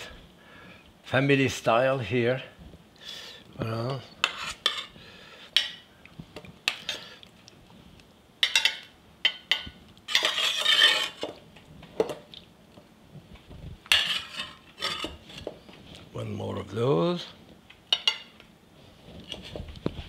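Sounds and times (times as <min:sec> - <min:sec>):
metal spoon clinking on pan: 0:08.4 - 0:11.2, 0:17.9 - 0:18.3.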